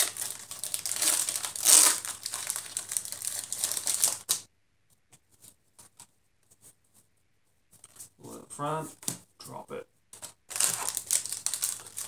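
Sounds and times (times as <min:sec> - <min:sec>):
foil wrapper crinkling and tearing: 0:00.0 - 0:04.4, 0:10.2 - 0:12.0.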